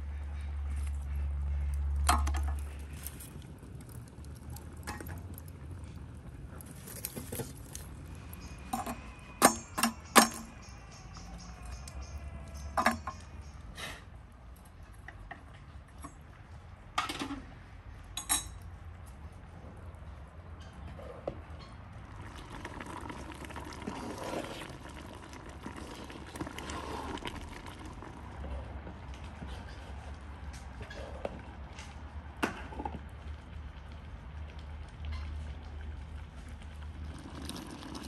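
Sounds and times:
metal tongs clinking on samovar: 0:18.2 - 0:18.6.

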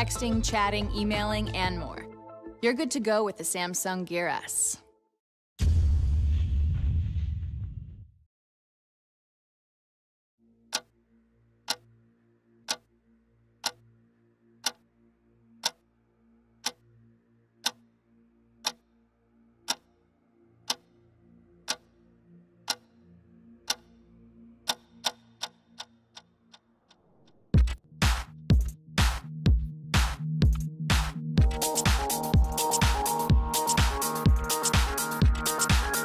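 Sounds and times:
low synth drone: 0:10.4 - 0:25.0
clock-like ticking: 0:10.7 - 0:10.9, 0:11.7 - 0:11.9, 0:12.7 - 0:12.9, 0:13.6 - 0:13.8, 0:14.6 - 0:14.8, 0:15.6 - 0:15.8, 0:16.6 - 0:16.8, 0:18.6 - 0:18.8, 0:19.7 - 0:19.9, 0:20.7 - 0:20.9, 0:21.7 - 0:21.9, 0:22.7 - 0:22.9, 0:23.6 - 0:23.9, 0:24.6 - 0:27.8, 0:31.4 - 0:36.0.

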